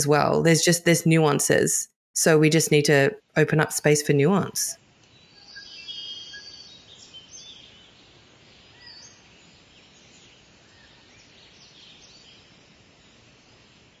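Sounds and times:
faint birds chirping: 3.8 - 14.0
background hiss: 4.9 - 14.0.

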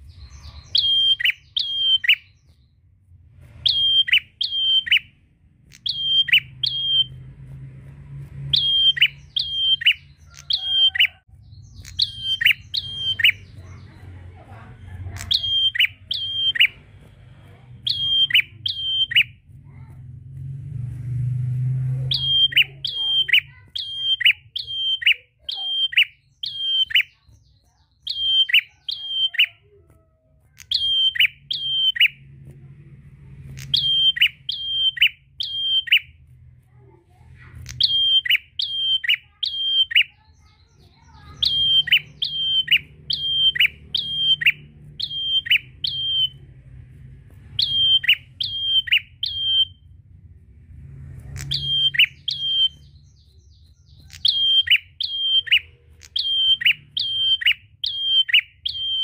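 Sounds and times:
bird calling: 0.0 - 2.5, 3.6 - 7.2, 8.5 - 16.8, 17.8 - 19.4, 22.1 - 27.3, 28.0 - 29.8, 30.6 - 32.2, 33.6 - 36.1, 37.6 - 46.4, 47.6 - 49.8, 51.3 - 59.0.

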